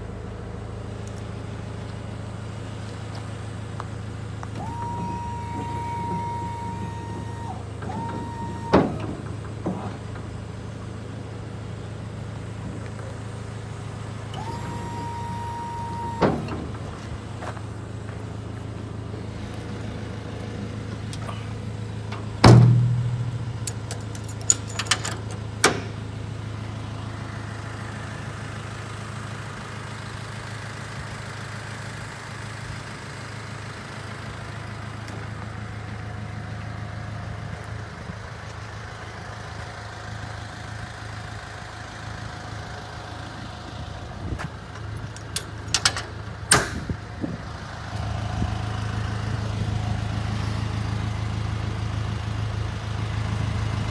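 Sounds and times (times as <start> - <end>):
truck engine idling: 0.0 - 53.9
sharp clicks and knocks: 22.1 - 26.0, 44.8 - 46.9
loud ringing bang: 22.4 - 23.6.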